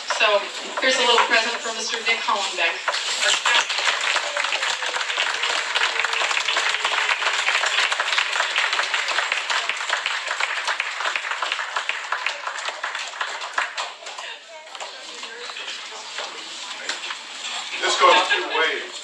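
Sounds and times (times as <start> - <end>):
audience applauding: 2.7 - 18.8.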